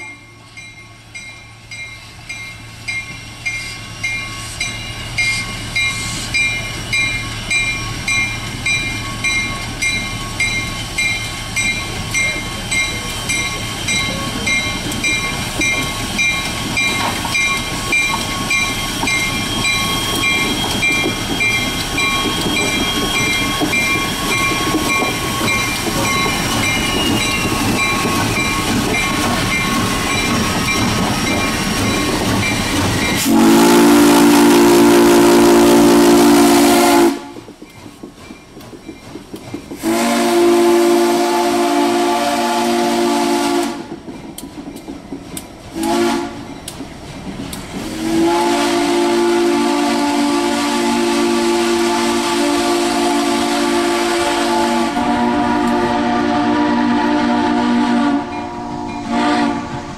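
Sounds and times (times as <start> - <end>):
railroad crossing bell dinging: 0.0 - 35.2, 58.2 - 59.4
steam locomotive rolling past: 0.0 - 59.9
steam whistle: 33.2 - 37.4, 39.8 - 43.9, 45.8 - 46.4, 47.9 - 59.9.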